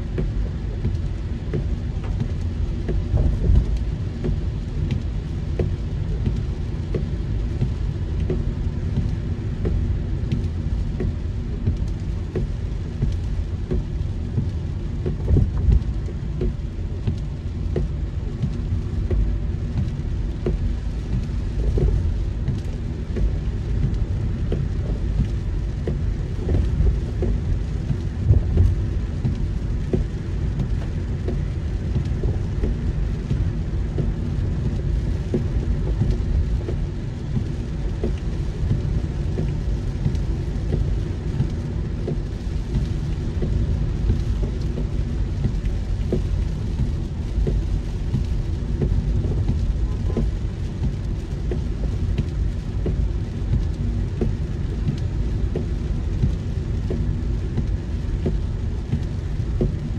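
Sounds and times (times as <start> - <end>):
heavy rain on a car: 0.0 - 59.9
low rumble: 0.0 - 59.9.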